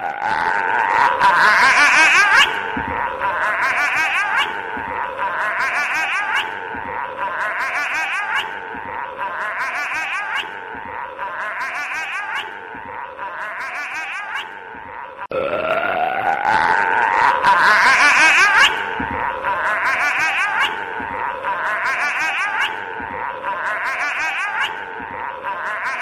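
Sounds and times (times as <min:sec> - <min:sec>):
eerie warbling laugh-like sound: 0:00.0 - 0:26.0.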